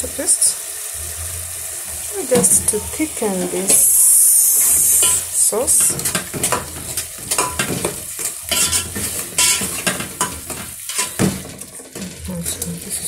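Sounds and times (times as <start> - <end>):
sauce sizzling: 0.0 - 13.0
metal spoon scraping a pot: 4.6 - 13.0.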